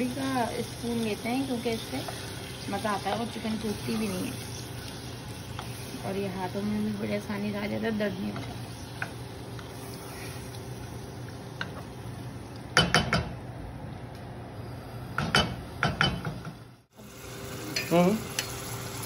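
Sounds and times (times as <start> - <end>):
chicken sizzling in oil: 0.0 - 12.5, 16.9 - 19.0
wooden spoon scraping a pan: 1.5 - 6.2.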